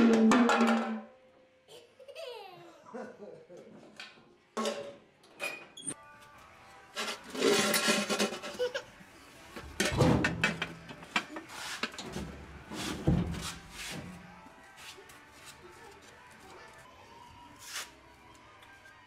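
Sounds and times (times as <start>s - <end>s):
toddler voice: 1.7s - 2.8s.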